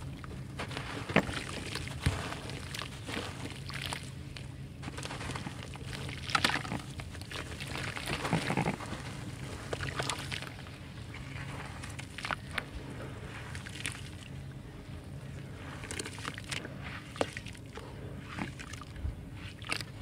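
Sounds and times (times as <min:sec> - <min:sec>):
dry dirt crunching and crumbling: 0:00.0 - 0:20.0
hand squishing wet mud: 0:00.0 - 0:20.0
grit splashing into water: 0:04.8 - 0:09.0.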